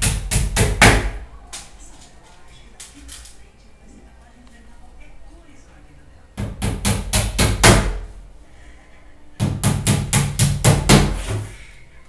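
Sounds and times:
hammer strikes with dull thud: 0:00.0 - 0:01.2, 0:06.4 - 0:08.1, 0:09.4 - 0:11.5.

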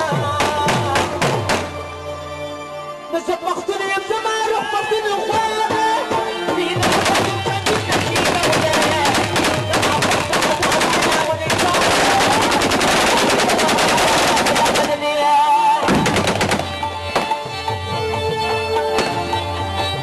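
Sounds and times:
person singing: 0:00.0 - 0:01.7, 0:03.0 - 0:16.1
loud music: 0:00.0 - 0:20.0
automatic gunfire: 0:06.8 - 0:15.2, 0:15.8 - 0:17.3.

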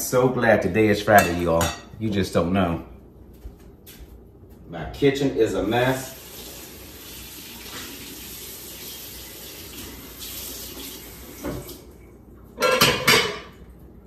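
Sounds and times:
faucet running into sink: 0:06.1 - 0:12.0.

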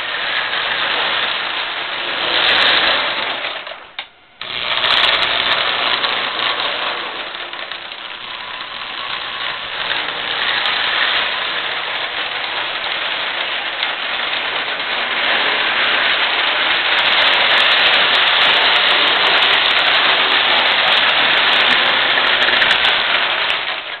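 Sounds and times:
toy train rattling hum: 0:00.0 - 0:24.0.

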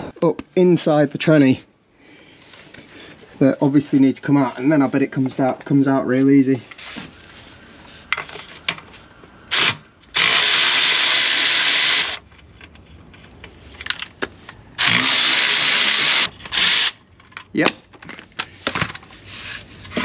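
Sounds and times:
power tool running: 0:09.5 - 0:12.2, 0:14.8 - 0:17.0.

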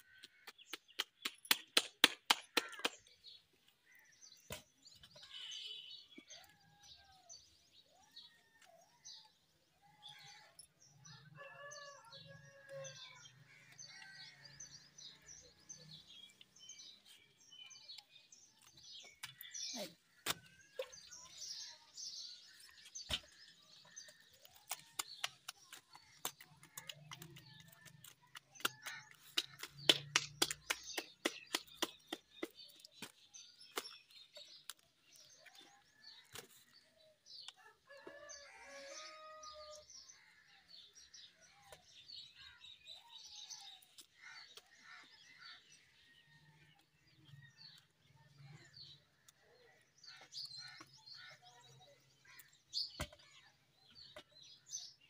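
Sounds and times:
small birds chirping: 0:00.0 - 0:55.0
rapid sharp taps: 0:24.7 - 0:32.6
rooster crowing: 0:37.9 - 0:39.8.

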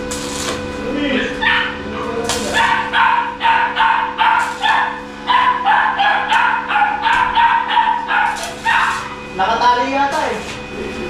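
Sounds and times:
dog barking: 0:01.4 - 0:01.8, 0:02.4 - 0:09.2.

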